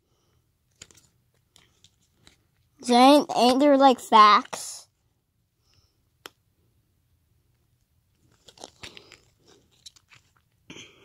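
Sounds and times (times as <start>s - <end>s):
cardboard tag crinkling: 8.2s - 10.5s.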